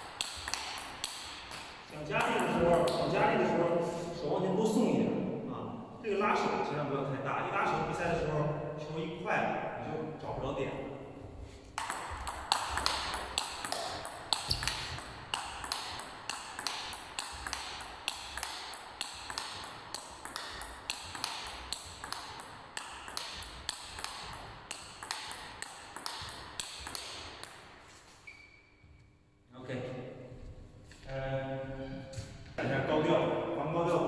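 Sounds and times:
table tennis ball clicking: 0.0 - 3.1, 11.8 - 27.7.

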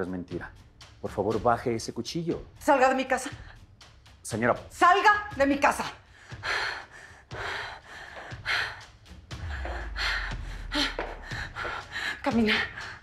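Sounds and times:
low rumble: 9.3 - 12.0.

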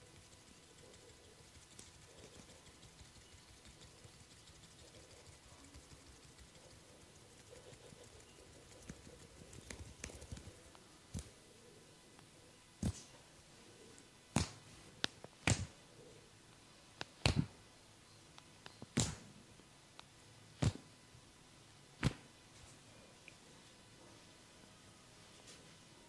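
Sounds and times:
faint rustling and crackles: 0.0 - 17.5, 25.2 - 26.0
massage strikes on body: 14.3 - 14.7, 15.4 - 15.8, 17.2 - 17.5, 18.9 - 19.3, 20.6 - 20.9, 22.0 - 22.3.

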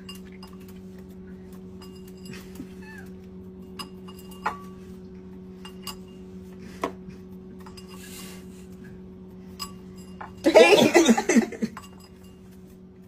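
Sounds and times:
steady low hum: 0.0 - 13.0
glassware clinking on stone: 9.6 - 12.4.

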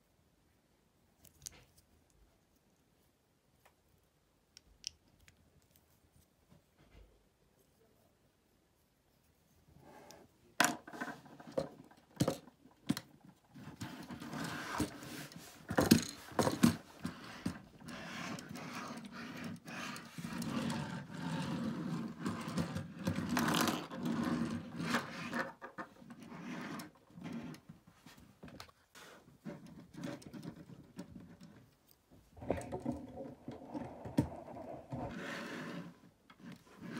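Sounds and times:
toy rubbing on tabletop: 13.6 - 15.8, 16.4 - 27.6, 34.6 - 36.9.

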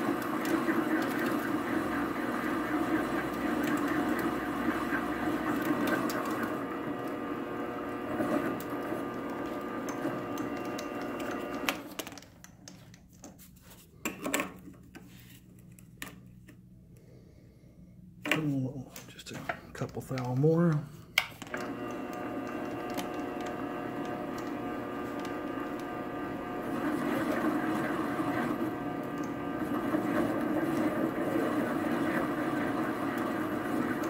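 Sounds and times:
metal lathe whirring: 0.0 - 11.9, 21.5 - 34.0.

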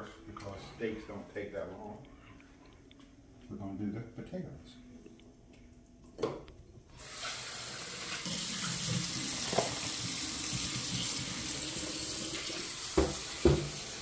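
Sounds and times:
faucet water splashing into pot: 7.0 - 14.0
pot knocking: 13.0 - 13.8.

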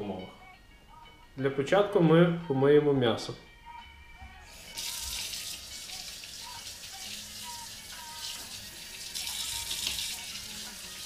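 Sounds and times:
faucet water splashing into sink: 4.8 - 11.0.

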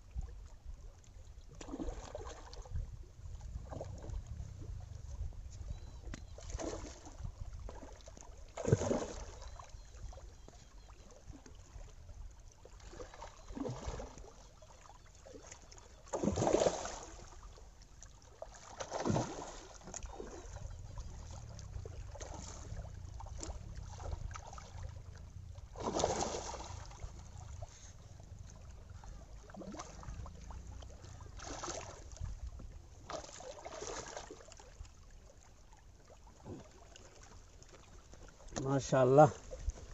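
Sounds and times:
steady low rumble: 2.9 - 5.7, 20.5 - 33.0
fish splashing at the surface: 8.6 - 9.4, 18.6 - 20.4.

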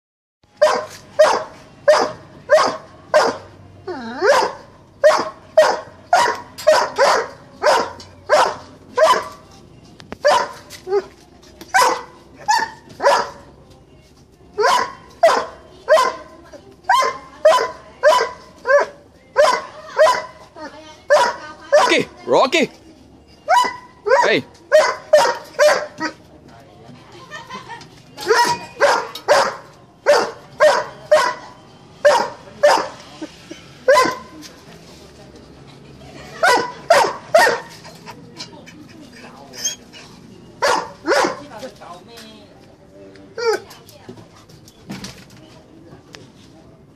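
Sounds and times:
dog barking: 0.6 - 3.5, 4.2 - 9.4, 10.2 - 10.6, 11.8 - 13.4, 14.6 - 16.3, 16.9 - 20.4, 21.1 - 22.1, 23.5 - 26.2, 28.3 - 33.0, 33.9 - 34.3, 36.4 - 37.7, 40.6 - 41.4.

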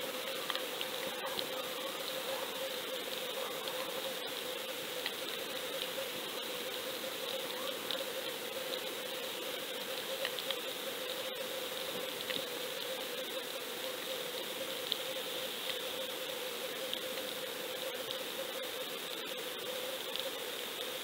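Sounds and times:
faint clicks: 0.4 - 0.7, 10.2 - 10.6.

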